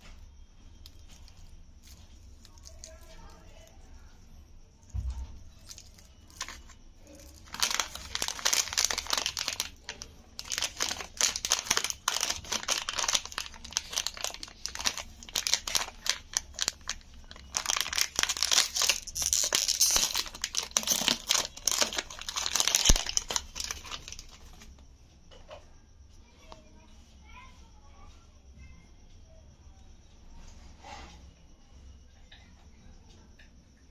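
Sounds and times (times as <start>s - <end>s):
plastic wrapper crinkling: 0.8s - 4.1s, 5.4s - 24.8s.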